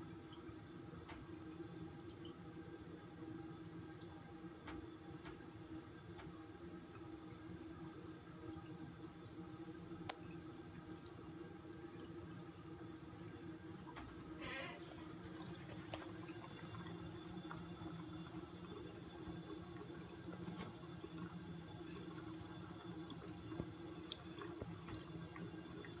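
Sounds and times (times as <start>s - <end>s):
tap water running into sink: 0.0s - 26.0s.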